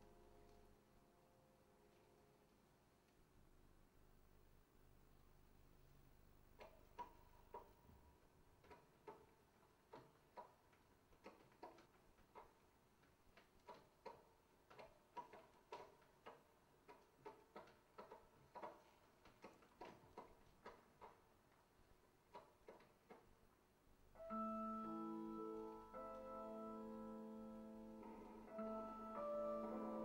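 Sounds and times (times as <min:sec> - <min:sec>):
sustained chord music: 0:24.2 - 0:30.0.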